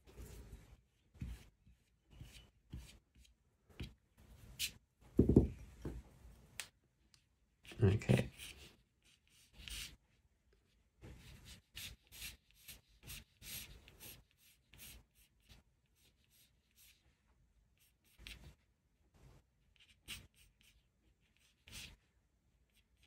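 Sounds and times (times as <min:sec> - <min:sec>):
pencil scratching on paper: 0:00.2 - 0:04.0, 0:07.6 - 0:17.2, 0:17.8 - 0:18.6, 0:19.6 - 0:23.0.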